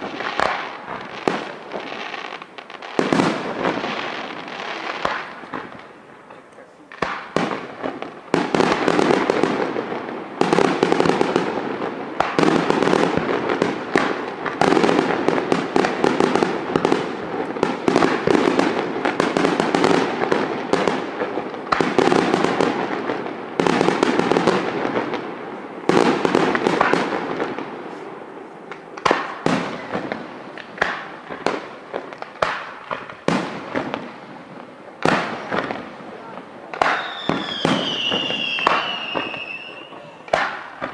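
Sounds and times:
firework shells bursting: 35.0 - 40.9.

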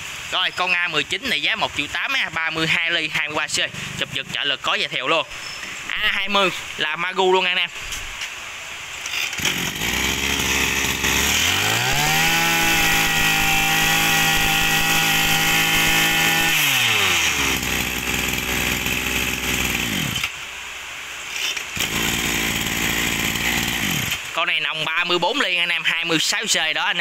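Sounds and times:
brush cutter engine revving: 9.0 - 20.4, 21.3 - 24.4.

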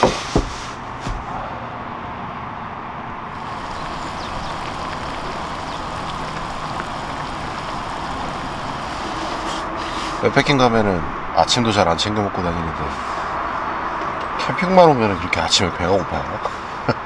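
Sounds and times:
water boiling in a pan: 3.4 - 9.4.

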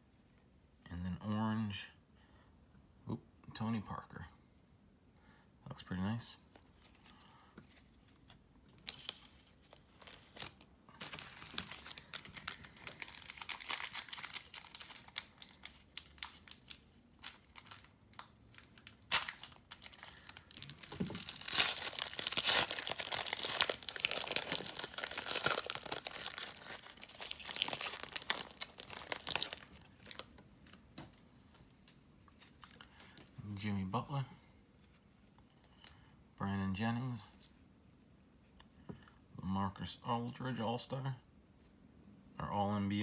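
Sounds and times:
foil wrapper crinkling and tearing: 8.8 - 30.8.

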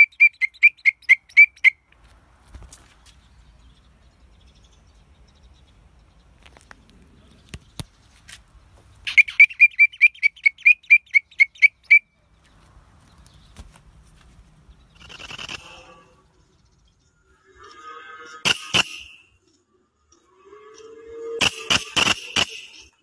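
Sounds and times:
katydid chirping: 9.0 - 12.1, 14.8 - 16.0.

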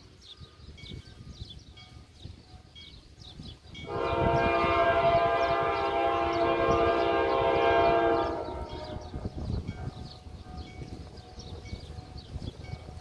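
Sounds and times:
locomotive horn blast: 3.8 - 9.2.

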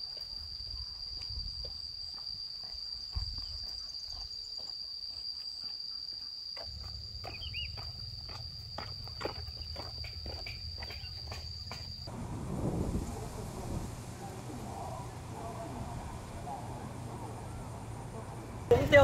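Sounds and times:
high-pitched insect drone: 0.0 - 12.1.

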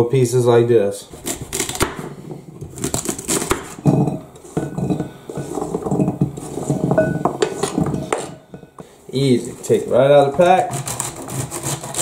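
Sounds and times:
knife chopping on cutting board: 1.2 - 2.1, 2.8 - 3.8.

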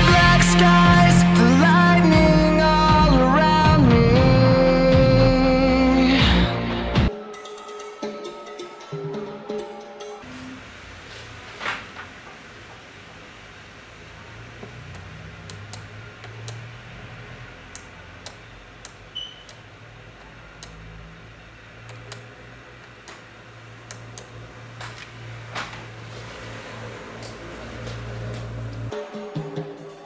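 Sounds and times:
faint high beep: 19.1 - 19.5.

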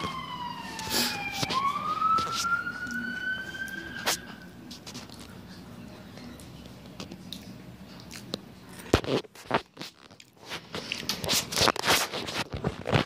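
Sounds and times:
crunchy snack chewing: 6.4 - 13.0.

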